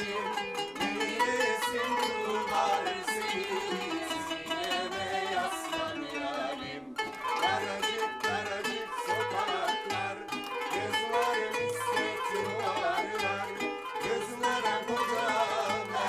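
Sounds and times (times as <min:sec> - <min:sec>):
plucked zither notes: 0:00.0 - 0:16.0.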